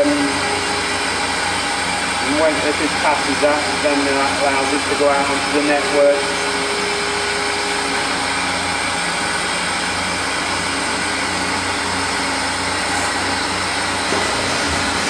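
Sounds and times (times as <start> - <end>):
low hum: 0.0 - 11.9
hydraulic machine whir and hiss: 0.0 - 15.0.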